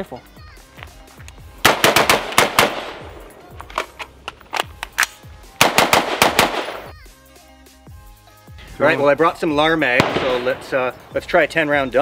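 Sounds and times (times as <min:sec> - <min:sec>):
background music: 0:00.0 - 0:12.0
rifle shots: 0:01.6 - 0:03.4, 0:05.6 - 0:06.9, 0:09.9 - 0:11.1.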